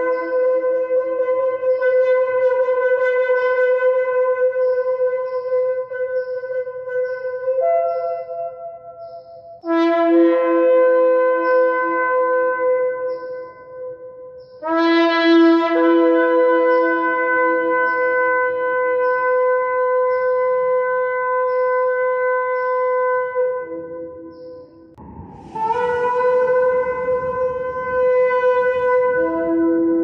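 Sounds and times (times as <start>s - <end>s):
shofar blasts: 0.0s - 8.9s, 9.6s - 14.0s, 14.6s - 30.0s.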